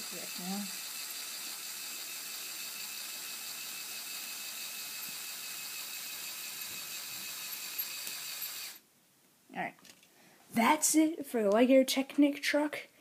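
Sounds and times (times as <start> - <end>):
electric motor whirring: 0.0 - 8.8.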